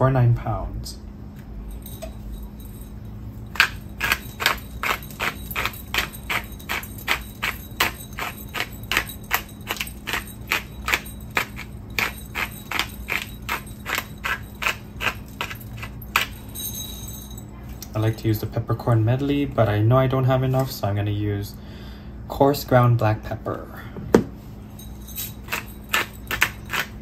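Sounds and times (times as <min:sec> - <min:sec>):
pepper rattling in container: 0:03.4 - 0:16.8, 0:24.8 - 0:27.0.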